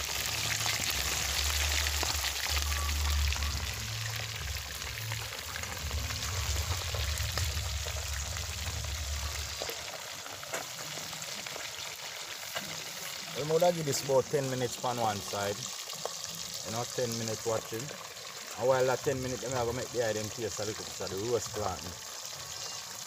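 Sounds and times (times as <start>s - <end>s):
fish frying in hot oil: 0.0s - 23.0s
low rumble: 2.5s - 10.0s.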